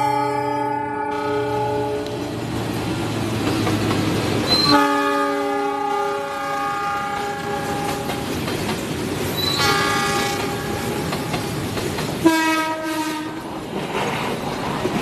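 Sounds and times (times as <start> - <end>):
train horn blasts: 0.0 - 2.3, 4.5 - 8.3, 9.4 - 11.3, 12.2 - 13.5
second train running in: 0.0 - 15.0
train wheels clacking on rails: 2.0 - 15.0.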